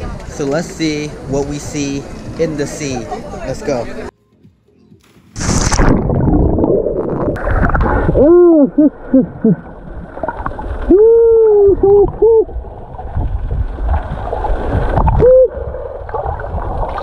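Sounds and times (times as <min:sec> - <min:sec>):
water rushing and gurgling: 0:05.4 - 0:17.0.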